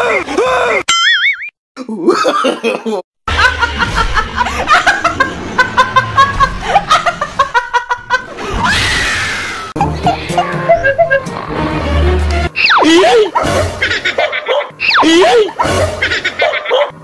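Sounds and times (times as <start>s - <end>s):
person laughing: 1.8s - 8.6s, 9.8s - 11.5s, 12.7s - 17.0s.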